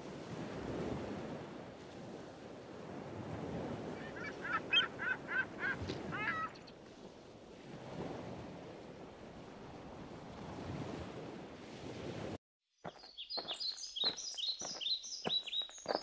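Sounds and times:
rushing water and wind: 0.0s - 12.4s
high falling bird chirps: 12.8s - 16.0s.

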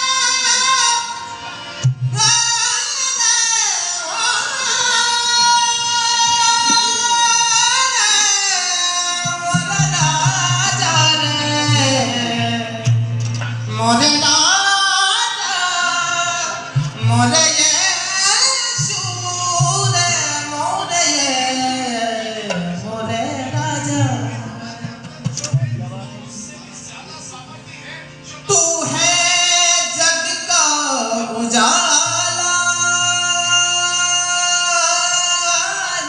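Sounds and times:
instrumental backing: 0.0s - 36.0s
person singing a melody: 2.2s - 13.1s.

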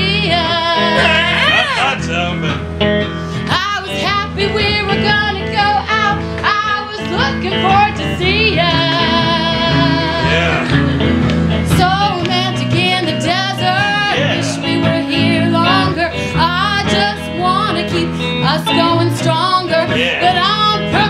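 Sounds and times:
person singing: 0.0s - 2.6s, 3.5s - 11.0s, 11.8s - 21.0s
guitar: 0.0s - 21.0s.

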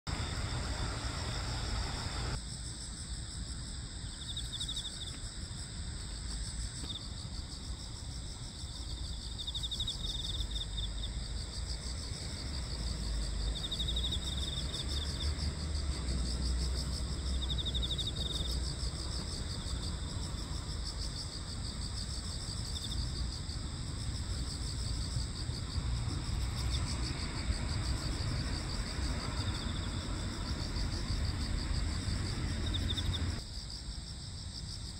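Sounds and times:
night insects trilling: 0.1s - 34.9s
low rumble: 23.6s - 33.4s.

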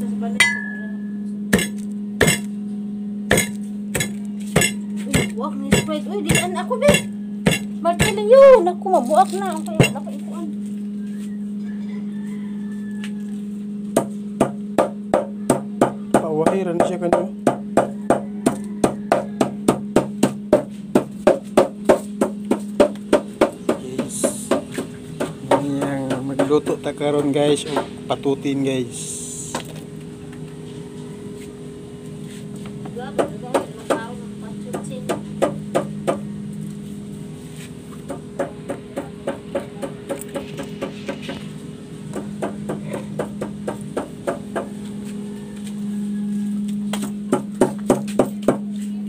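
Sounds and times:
held low tone: 0.0s - 12.1s
low hum: 0.0s - 49.0s
percussive beat: 1.5s - 2.5s, 3.3s - 8.4s, 9.8s - 10.1s, 14.0s - 28.0s.

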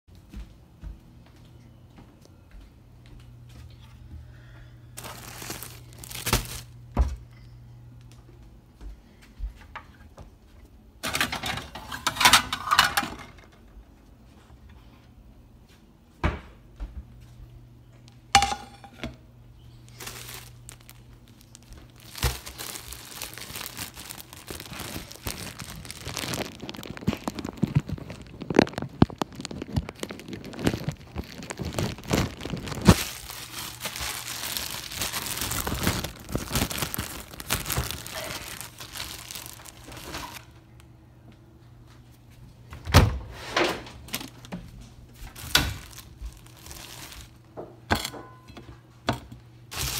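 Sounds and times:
plastic bag crinkling: 5.0s - 7.0s, 19.6s - 40.6s, 44.0s - 47.5s.

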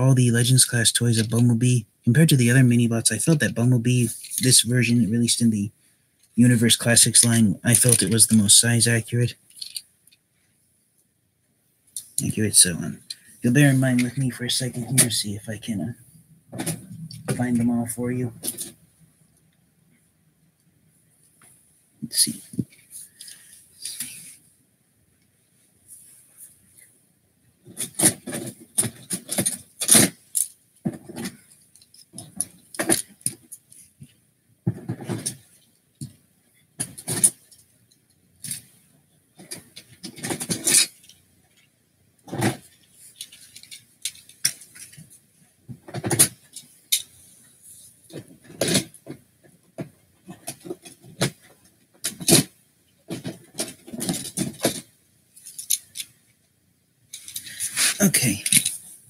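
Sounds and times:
plastic toys clattering: 4.0s - 4.6s, 7.1s - 10.2s, 18.4s - 18.8s, 27.6s - 34.1s, 36.8s - 38.8s, 39.4s - 45.2s, 45.8s - 49.2s, 49.8s - 56.2s, 57.1s - 58.9s.

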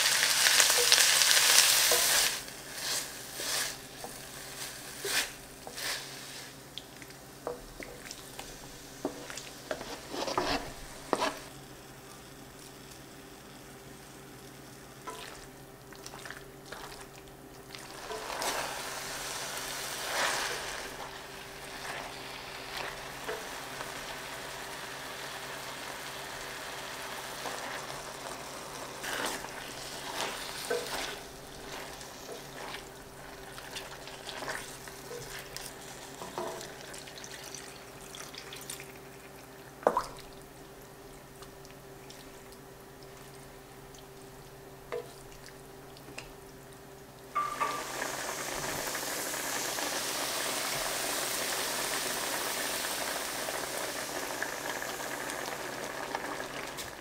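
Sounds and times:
chicken sizzling in a pan: 0.0s - 15.7s, 17.8s - 39.9s, 47.3s - 57.0s
wooden spatula scraping a pan: 8.4s - 11.5s, 18.0s - 19.2s, 29.0s - 35.5s.

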